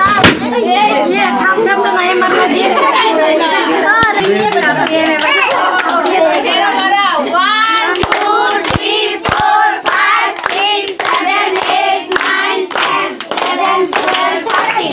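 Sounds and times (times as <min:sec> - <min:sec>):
group of people singing: 0:07.4 - 0:14.9
hand claps: 0:07.9 - 0:14.9.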